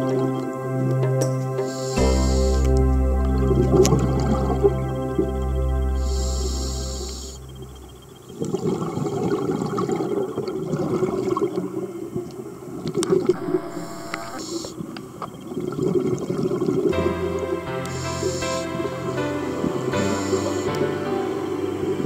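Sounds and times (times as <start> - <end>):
background music: 0.0 - 8.4, 16.9 - 22.0
underwater scuba exhaust bubbles: 8.3 - 12.0.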